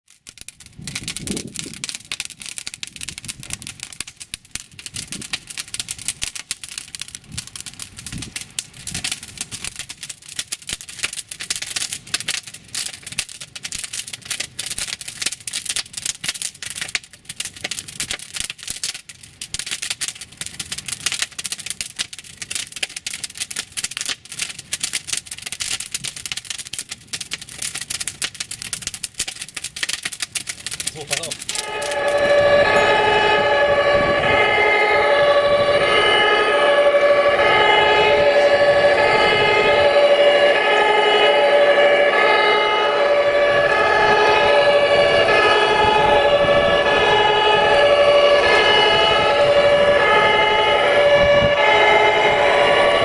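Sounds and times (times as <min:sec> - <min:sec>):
large fire crackling and popping: 0:00.0 - 0:53.0
low rumbling: 0:31.3 - 0:53.0.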